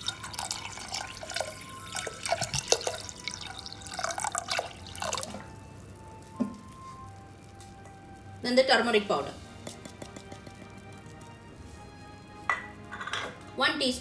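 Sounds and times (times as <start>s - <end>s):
water pouring into a pot: 0.0s - 7.6s, 9.5s - 12.0s.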